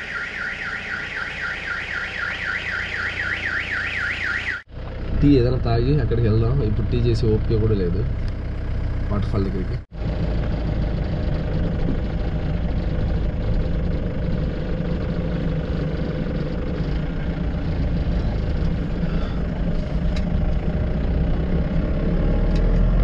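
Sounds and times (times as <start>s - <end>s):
motorcycle engine running: 4.7s - 22.6s.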